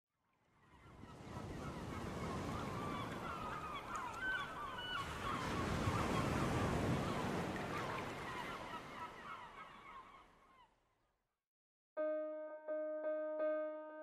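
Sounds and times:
birds honking: 0.7 - 10.6.

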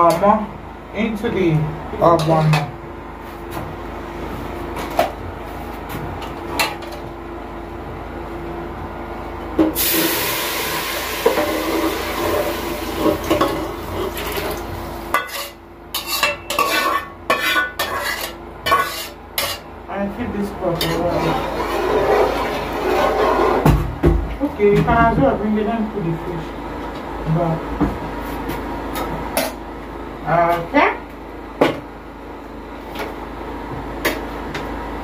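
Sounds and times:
food hissing in hot oil: 9.8 - 13.0.

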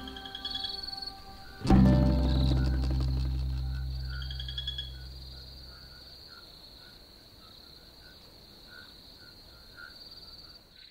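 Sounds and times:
music bass: 0.0 - 6.0
insect chirping calls: 0.0 - 10.9
insects trilling: 0.0 - 10.9.

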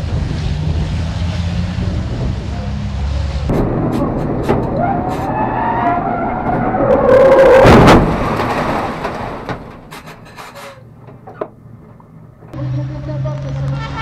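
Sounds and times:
truck engine revving: 0.0 - 10.5
loud rush of gravel: 3.5 - 10.0.

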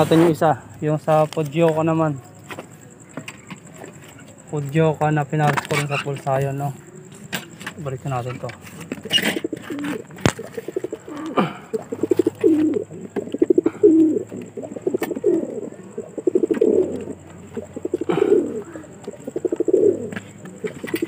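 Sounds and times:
pigeons cooing: 8.0 - 21.0.

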